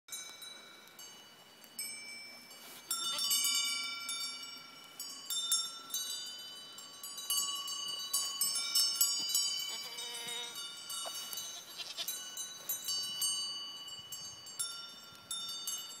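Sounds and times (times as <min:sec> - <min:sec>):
goat bells ringing: 0:00.1 - 0:16.0.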